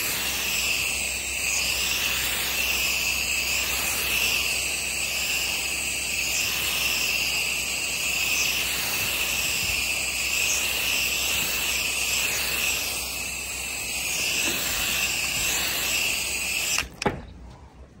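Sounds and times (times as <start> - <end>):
pressure washer spraying water: 0.0 - 17.1.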